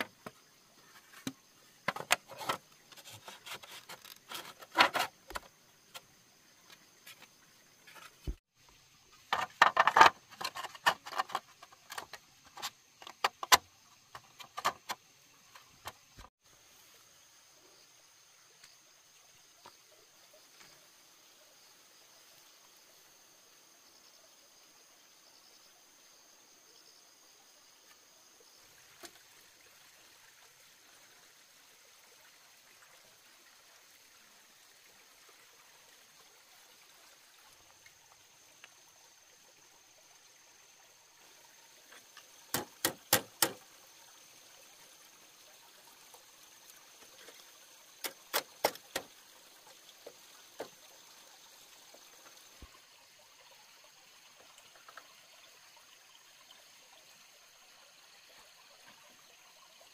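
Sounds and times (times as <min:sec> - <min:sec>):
trickle of running water: 0:00.0 - 0:59.9.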